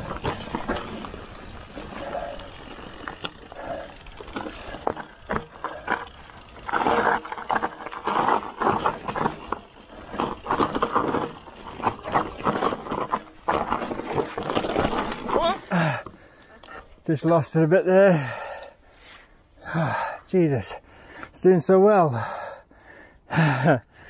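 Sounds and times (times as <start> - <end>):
bike rattling and knocking: 0.0 - 16.4
bike tyre rumble: 0.0 - 16.9.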